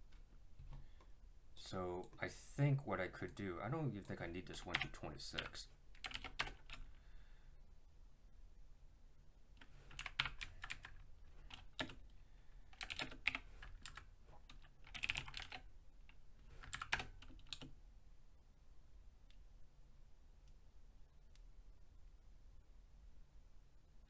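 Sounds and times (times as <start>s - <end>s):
computer keyboard typing: 4.5s - 7.0s, 9.6s - 12.1s, 12.7s - 17.7s.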